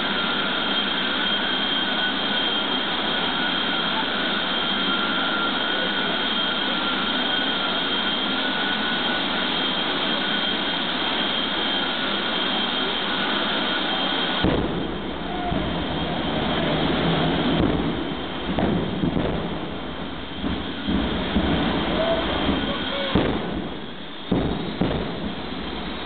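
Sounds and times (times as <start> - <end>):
afterburner blast: 0.0 - 26.0
turbine engines whining: 0.0 - 26.0.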